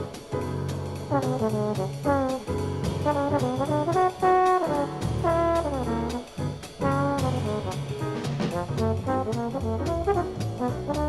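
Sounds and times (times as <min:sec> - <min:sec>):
cymbal strokes: 0:00.0 - 0:08.7
brass horn solo: 0:01.1 - 0:11.0.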